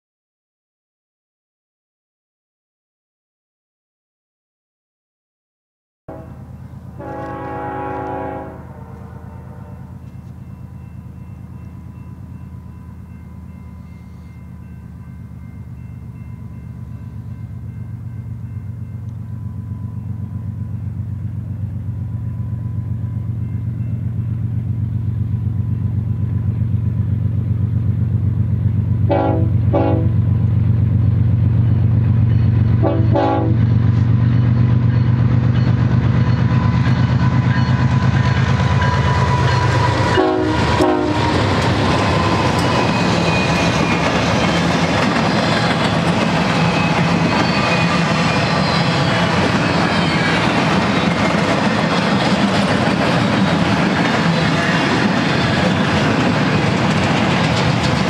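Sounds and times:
train horn blasts: 6.1 - 10.2, 29.0 - 30.4, 32.8 - 33.8, 38.7 - 44.1
diesel locomotive engine rumble: 6.1 - 58.0
rail cars clattering: 6.1 - 58.0.

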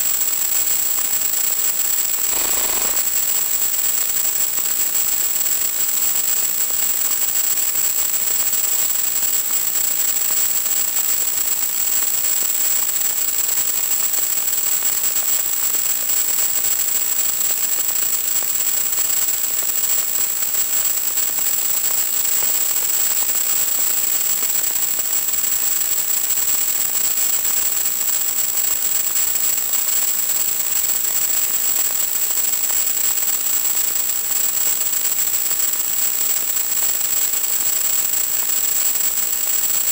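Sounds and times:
static hiss: 2.2 - 3.3
thin high whine: 2.2 - 3.3.

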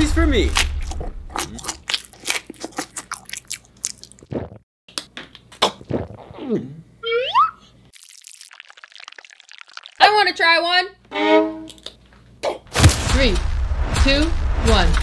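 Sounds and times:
person chewing candy: 0.7 - 4.6, 8.0 - 10.0
crisp crunches: 8.0 - 10.0.

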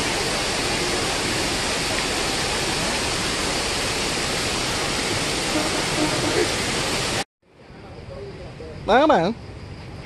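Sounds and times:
fountain water splashing: 0.0 - 7.2.

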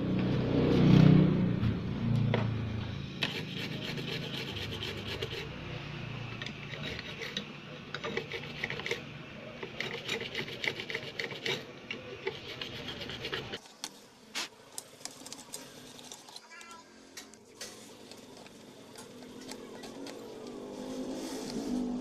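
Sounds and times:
hand tool scraping circuit board: 3.2 - 5.6, 6.4 - 13.6.

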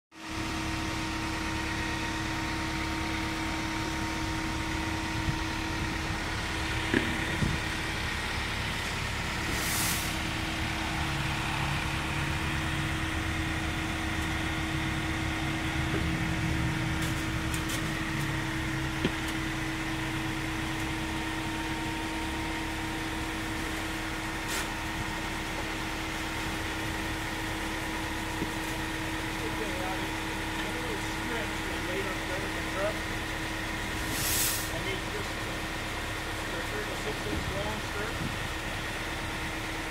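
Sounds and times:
industrial machinery droning: 0.2 - 39.9.

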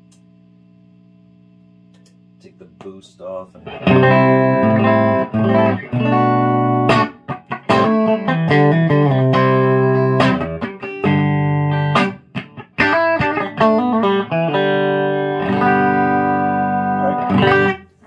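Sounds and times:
clean electric guitar: 3.6 - 18.0.

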